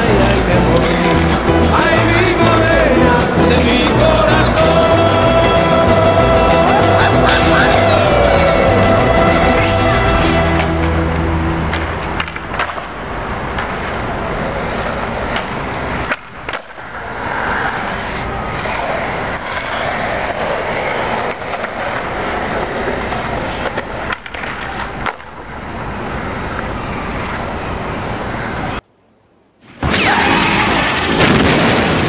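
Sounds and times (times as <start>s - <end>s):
skateboard clacking on ground: 0.0s - 4.0s, 10.4s - 27.6s
skateboard wheels rolling on pavement: 0.0s - 28.8s.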